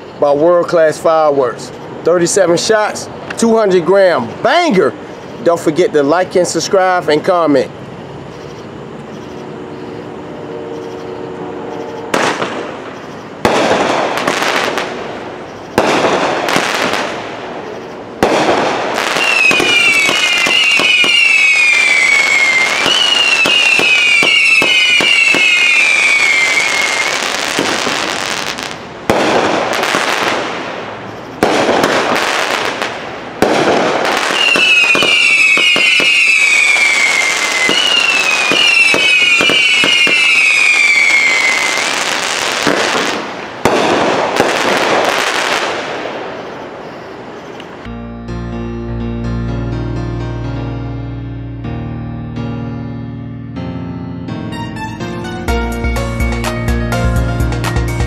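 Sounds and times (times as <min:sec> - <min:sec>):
firework shots: 0:12.0 - 0:47.8
falling firework whistles: 0:15.5 - 0:47.6
crackling firework breaks: 0:15.7 - 0:17.4, 0:18.2 - 0:30.8, 0:31.4 - 0:46.3.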